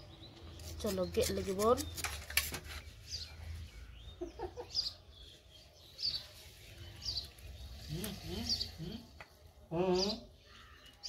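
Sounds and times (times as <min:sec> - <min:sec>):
low clucking bird calls: 0:03.9 - 0:05.1.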